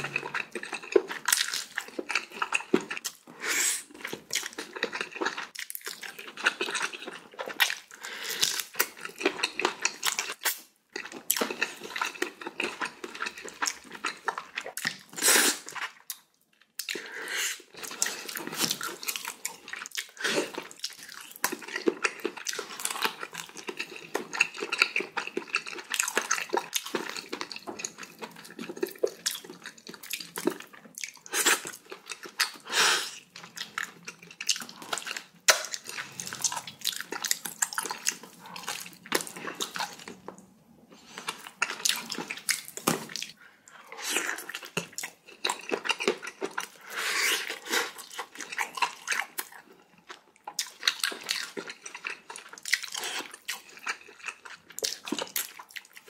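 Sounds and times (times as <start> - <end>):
wet chewing and slurping: 0.0 - 56.0.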